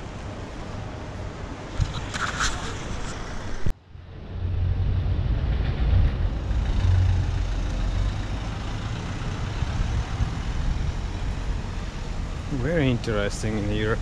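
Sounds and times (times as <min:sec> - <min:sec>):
car driving past: 0:04.2 - 0:12.5.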